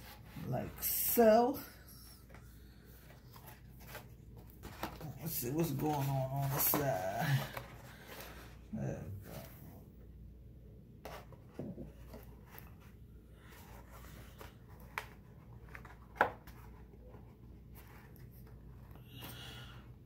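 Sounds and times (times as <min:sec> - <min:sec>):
low steady hum: 0:00.0 - 0:20.0
paper rustling: 0:03.0 - 0:08.6
paper taps and crinkles: 0:14.2 - 0:16.8.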